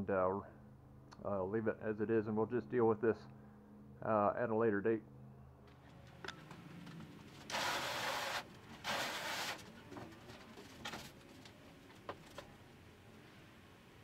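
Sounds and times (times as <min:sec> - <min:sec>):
foam panel sliding and scraping: 0:07.4 - 0:11.2.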